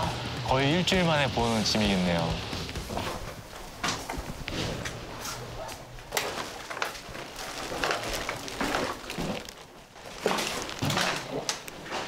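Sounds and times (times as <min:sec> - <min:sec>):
footsteps on paper-strewn floor: 0:01.8 - 0:12.0
plastic bags crinkling: 0:02.7 - 0:12.0.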